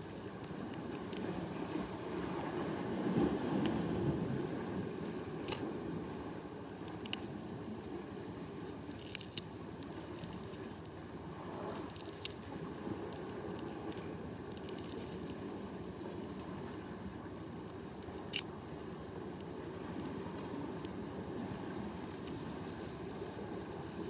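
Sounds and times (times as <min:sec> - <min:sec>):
shell clicks and crunches: 0:08.9 - 0:09.6, 0:11.7 - 0:12.6, 0:13.2 - 0:15.3, 0:17.6 - 0:18.5.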